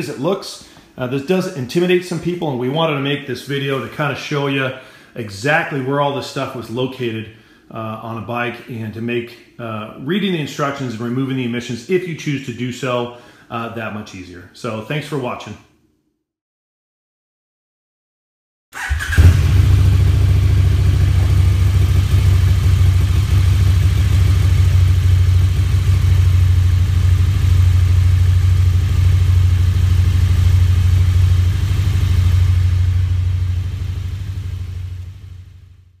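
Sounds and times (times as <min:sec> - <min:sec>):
motorcycle engine running: 0:18.8 - 0:35.8.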